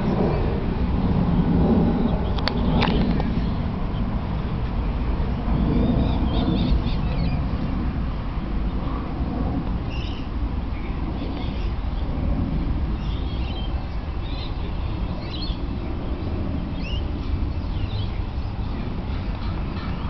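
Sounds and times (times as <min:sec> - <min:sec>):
steady low rumble: 0:00.0 - 0:20.0
birds chirping: 0:01.4 - 0:07.7, 0:09.8 - 0:12.2, 0:12.9 - 0:20.0.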